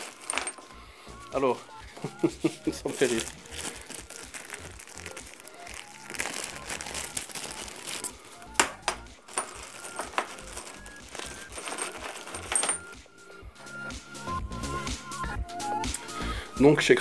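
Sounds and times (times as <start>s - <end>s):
small metal fittings clinking: 0.0s - 0.8s, 3.0s - 13.4s.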